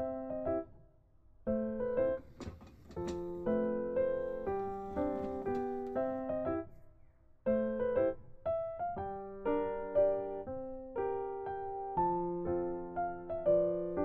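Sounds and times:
gentle piano melody: 0:00.0 - 0:14.0.

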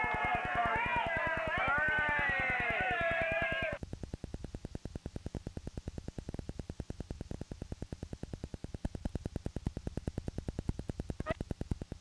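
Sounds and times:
low electrical hum: 0:03.7 - 0:12.0
rapid even clicking: 0:04.0 - 0:12.0.

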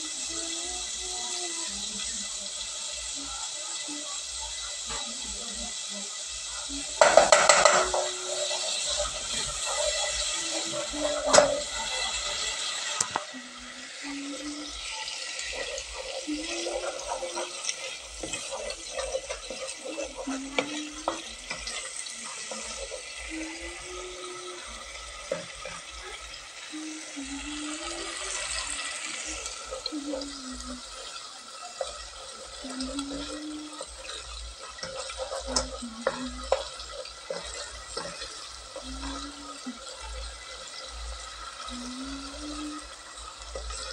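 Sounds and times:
food sizzling in a pot: 0:00.0 - 0:43.9
spoon scraping a pot: 0:06.8 - 0:13.2, 0:14.2 - 0:26.3, 0:27.4 - 0:43.9.

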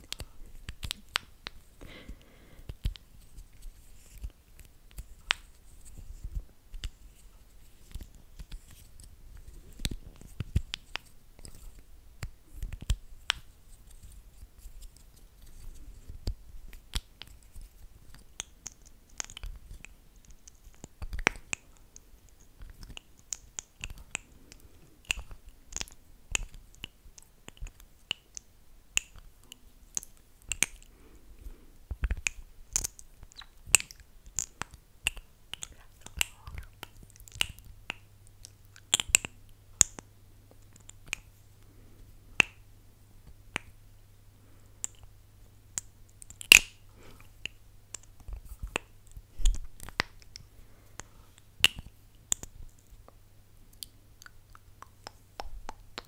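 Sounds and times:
lips smacking and clicking: 0:18.1 - 0:30.9, 0:31.9 - 0:40.0, 0:53.7 - 0:56.0.

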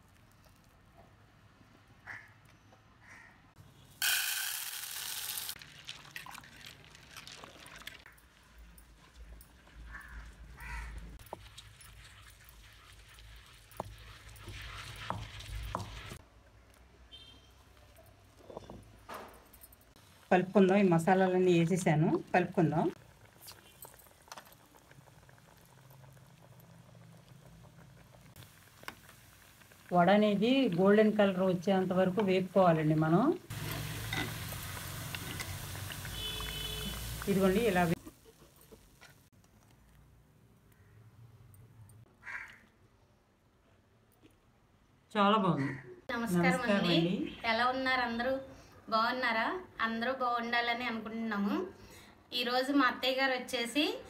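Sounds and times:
fritters sizzling in hot oil: 0:04.0 - 0:08.5, 0:09.2 - 0:16.2, 0:20.1 - 0:39.4.

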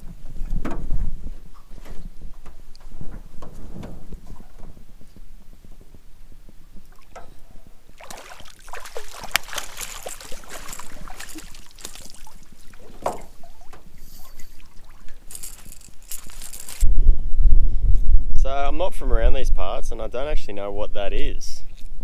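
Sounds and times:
fish splashing and thrashing: 0:07.9 - 0:16.8
water running off net: 0:07.9 - 0:16.8
metal net frame clinking on boat: 0:09.0 - 0:16.8.

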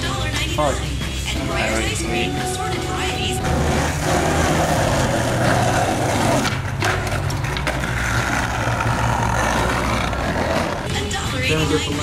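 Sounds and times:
skateboard wheels rolling on asphalt: 0:03.4 - 0:10.9.

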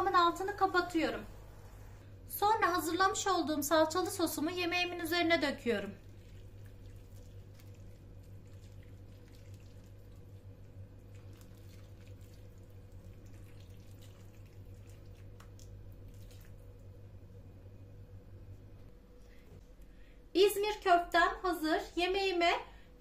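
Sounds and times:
steady low hum: 0:00.0 - 0:23.0
liquid trickling and splashing: 0:05.9 - 0:16.8.

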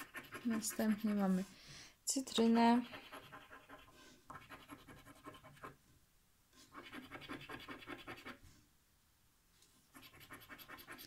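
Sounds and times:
coin scratching scratch card: 0:00.0 - 0:01.3, 0:02.9 - 0:05.8, 0:06.7 - 0:08.4, 0:09.9 - 0:11.0.

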